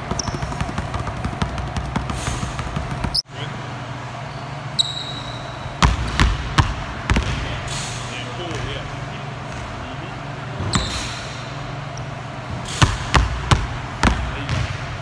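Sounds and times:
basketball bouncing on wooden floor: 0.0s - 3.2s, 5.8s - 7.4s, 12.5s - 15.0s
sneaker squeak: 0.0s - 3.3s, 4.2s - 6.2s, 10.6s - 11.6s
steady low hum: 0.0s - 15.0s.

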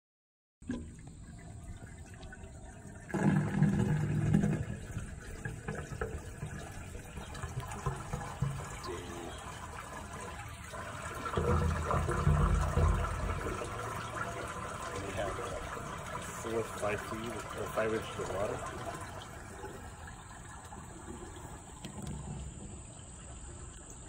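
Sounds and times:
water sloshing in a pipe: 0.6s - 24.0s.

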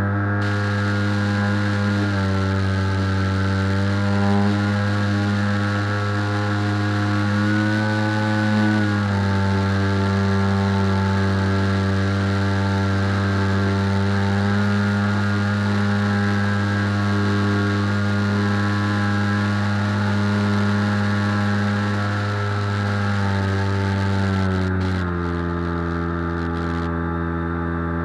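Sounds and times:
aircraft motor and propeller: 0.0s - 28.0s.

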